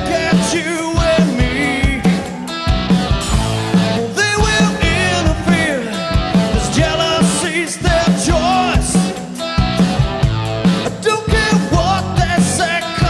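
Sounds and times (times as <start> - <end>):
man singing: 0.0 - 2.5, 3.7 - 9.3, 10.9 - 13.0
bass guitar: 0.0 - 13.0
drum beat: 0.0 - 13.0.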